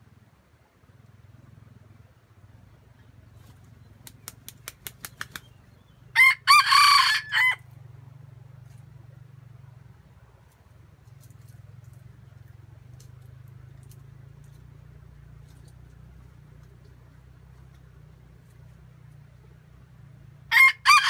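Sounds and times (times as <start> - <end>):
rooster flapping wings: 3.4 - 5.6
rooster crowing: 6.1 - 7.6, 20.5 - 21.0.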